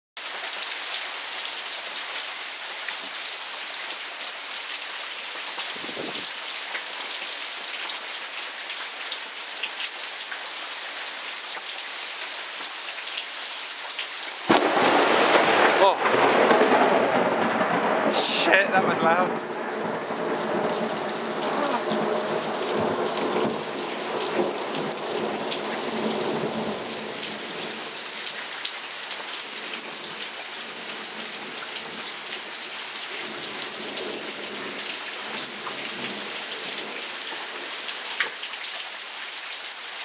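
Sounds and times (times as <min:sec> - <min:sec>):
heavy rain: 0:00.2 - 0:40.0
low rumble of thunder: 0:14.5 - 0:26.8.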